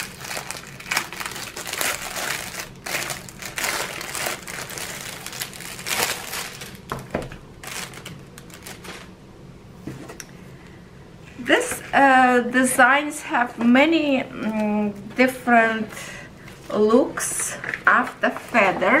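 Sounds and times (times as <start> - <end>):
plastic wrap crinkling: 0.0 - 9.2.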